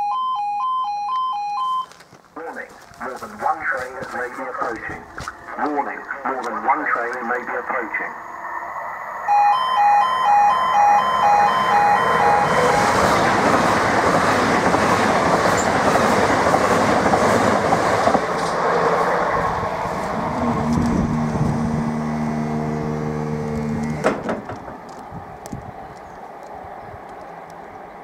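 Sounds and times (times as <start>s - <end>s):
two-tone crossing alarm: 0.0s - 2.0s, 5.2s - 13.7s
train rail noise: 2.9s - 28.0s.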